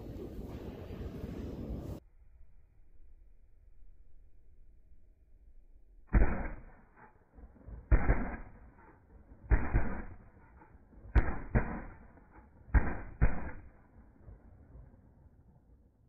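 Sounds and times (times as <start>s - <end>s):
shotgun shots: 6.1s - 13.9s.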